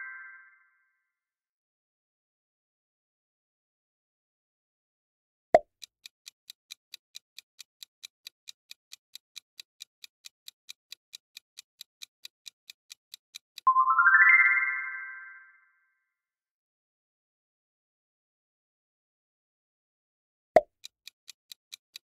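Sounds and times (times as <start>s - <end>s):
clock ticks: 5.6s - 13.7s, 20.6s - 22.0s.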